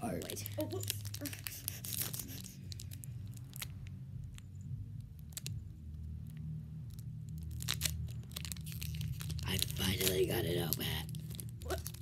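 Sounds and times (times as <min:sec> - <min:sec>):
foil wrapper crinkling: 0:00.0 - 0:04.4, 0:06.9 - 0:12.0
low steady hum: 0:00.0 - 0:12.0.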